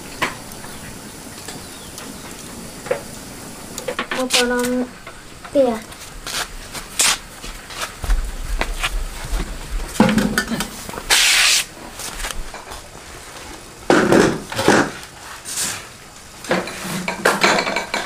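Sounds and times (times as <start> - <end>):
dishes and metal tray clattering: 10.0 - 10.8, 16.5 - 18.0.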